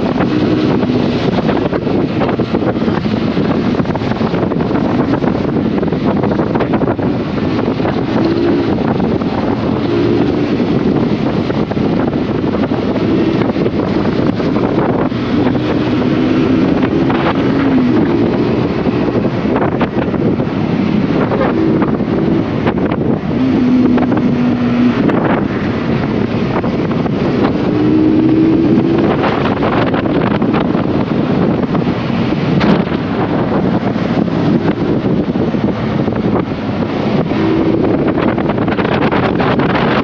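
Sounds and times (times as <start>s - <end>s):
motorcycle engine humming: 0.0s - 40.0s
wind rushing over microphone: 0.0s - 40.0s.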